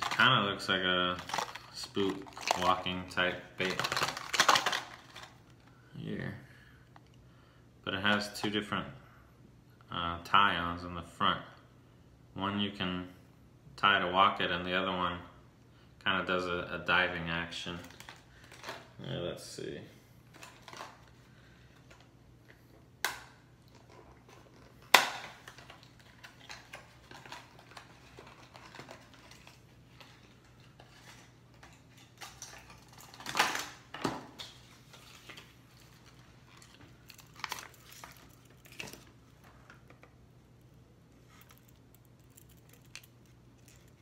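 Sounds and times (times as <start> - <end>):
plastic blister pack clicks and crinkles: 0.0 - 5.6, 17.7 - 18.9, 23.0 - 33.8, 34.4 - 40.2, 41.3 - 44.0.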